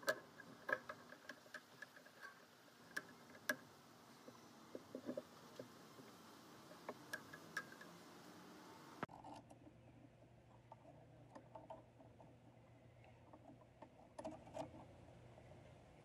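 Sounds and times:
faint clicks: 0.0 - 8.0.

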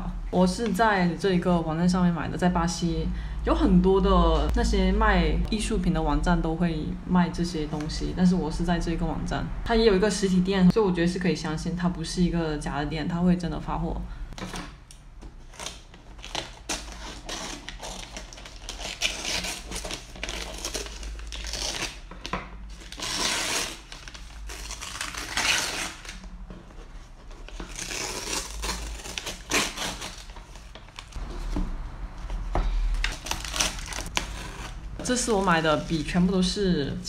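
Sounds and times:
paper tearing and crinkling: 15.4 - 22.0, 22.7 - 26.2, 27.3 - 31.2, 33.0 - 35.8.

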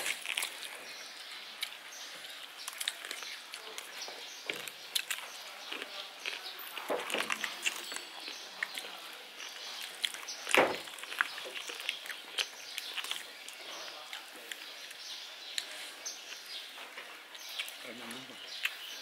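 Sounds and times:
chicken being torn apart: 0.0 - 0.8
thump: 10.6 - 10.9.

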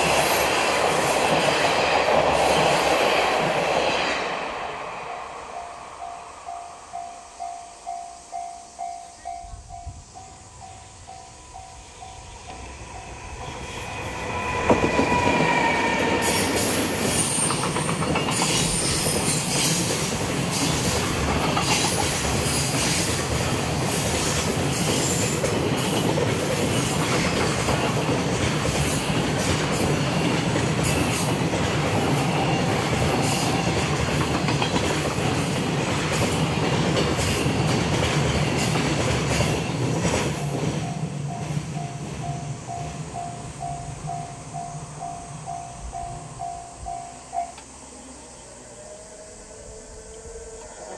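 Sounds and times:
train wheels rumbling and clattering: 0.0 - 5.1, 9.7 - 47.7
train horn blast: 13.4 - 17.6.

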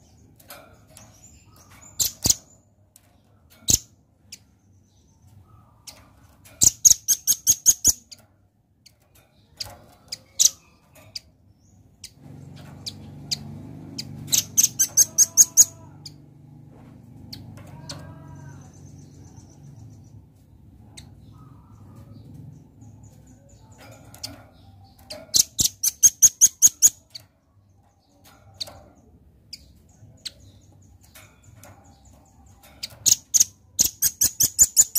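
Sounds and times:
bird rattling trills: 0.0 - 2.6, 3.5 - 8.2, 8.8 - 16.3, 23.0 - 34.9
bird sharp chips: 0.4 - 2.6, 9.4 - 15.8, 24.0 - 27.2, 29.5 - 34.9.

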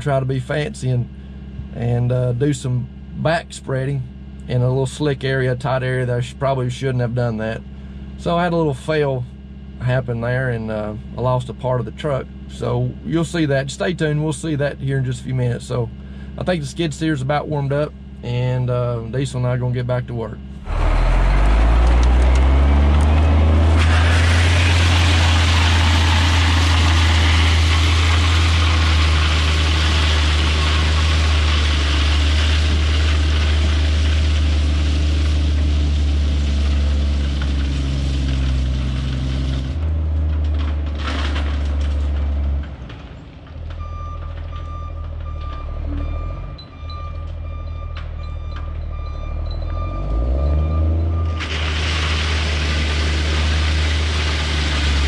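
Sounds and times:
dump truck diesel engine: 20.4 - 55.0
backup alarm beeping: 43.8 - 51.4.

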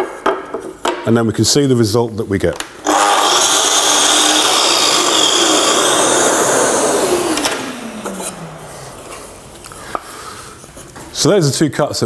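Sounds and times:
mitre saw cutting timber: 2.8 - 9.4
saw motor winding down whine: 2.8 - 9.5.

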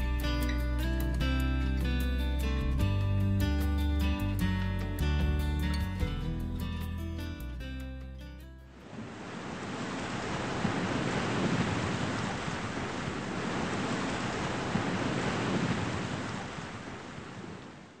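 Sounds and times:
water rushing like waves: 8.7 - 18.0.

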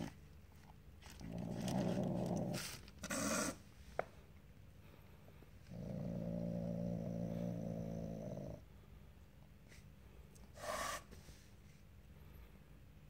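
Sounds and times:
cat growling low: 1.2 - 3.6, 5.6 - 8.6, 10.6 - 11.2.

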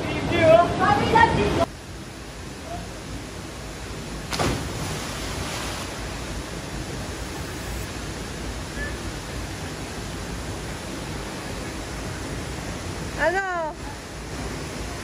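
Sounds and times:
person splashing into water: 4.3 - 5.8.

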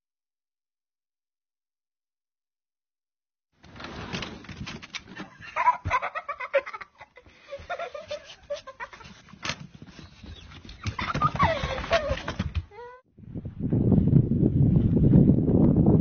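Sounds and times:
rustling and knocking in snow: 7.6 - 12.7.

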